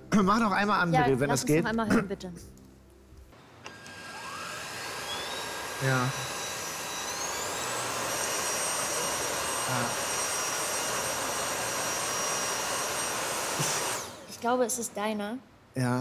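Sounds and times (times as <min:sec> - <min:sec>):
vacuum cleaner running: 0:03.4 - 0:14.6.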